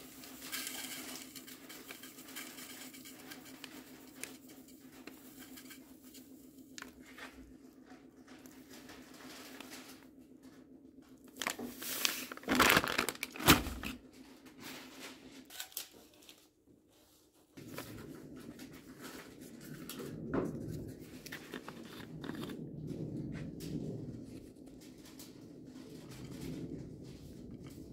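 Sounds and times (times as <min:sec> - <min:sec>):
handling and scraping noises: 0:00.0 - 0:27.9
plastic bag crinkling: 0:11.2 - 0:14.0.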